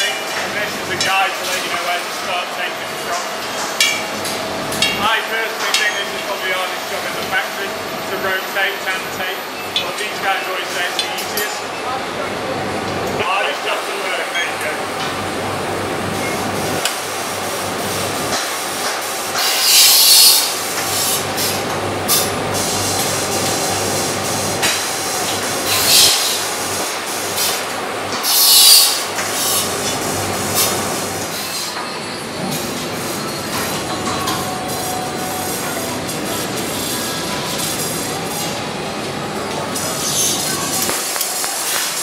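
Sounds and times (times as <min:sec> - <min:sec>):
factory machinery humming: 0:00.0 - 0:42.0.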